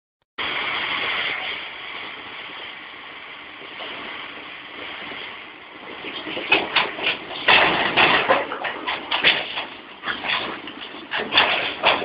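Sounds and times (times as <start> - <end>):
wind hiss on microphone: 0.4 - 8.0
distant excavator working: 0.4 - 12.0.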